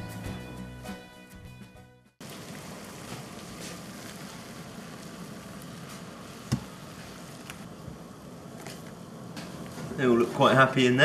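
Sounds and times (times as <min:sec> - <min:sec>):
music: 0:00.0 - 0:02.2
water bubbling at a boil: 0:02.2 - 0:11.0.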